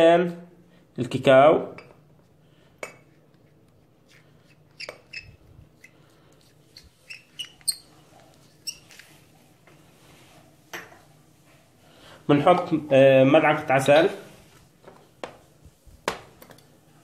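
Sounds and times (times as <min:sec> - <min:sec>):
spoon scraping inside a cup: 0:03.1 - 0:09.1.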